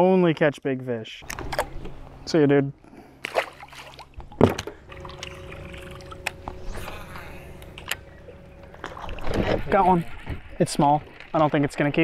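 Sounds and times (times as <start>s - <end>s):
water splashing against boat: 3.2s - 12.0s
steady hum: 4.1s - 11.3s.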